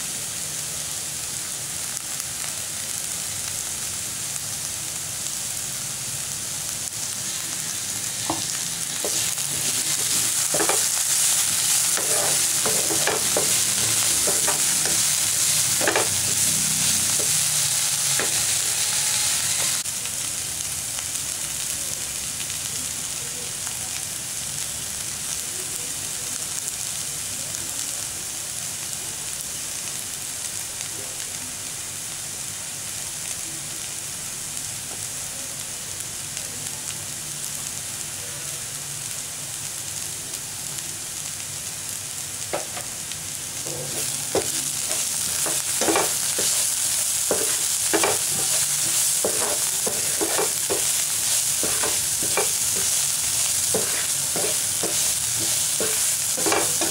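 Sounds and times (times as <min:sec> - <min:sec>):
vegetables sizzling in frying pan: 0:00.0 - 0:56.9
wooden spatula scraping pan: 0:08.3 - 0:19.8, 0:43.7 - 0:46.7, 0:47.3 - 0:52.9, 0:53.7 - 0:56.9.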